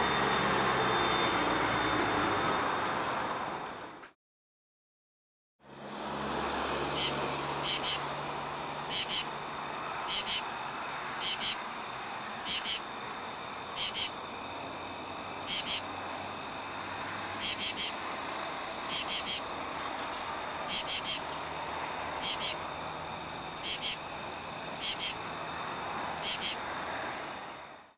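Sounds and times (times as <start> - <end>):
katydid calling: 6.8 - 8.1, 8.8 - 9.4, 10.0 - 11.6, 12.4 - 12.9, 13.7 - 14.2, 15.3 - 16.0, 17.3 - 18.0, 18.8 - 19.6, 20.6 - 21.5, 22.1 - 22.7, 23.5 - 24.1, 24.7 - 25.3, 26.1 - 26.7.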